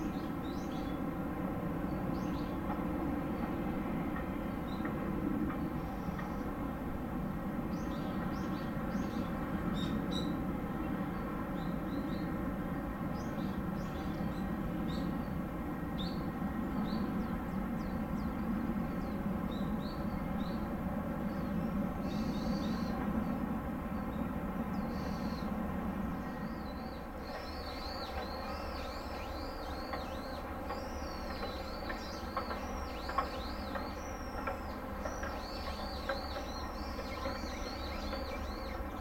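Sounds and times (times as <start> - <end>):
small birds chirping: 26.3 - 39.0.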